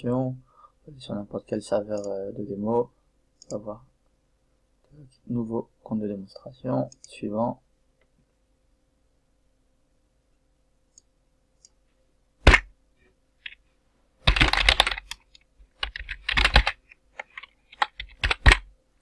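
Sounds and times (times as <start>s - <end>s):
computer keyboard typing: 14.2s - 18.7s.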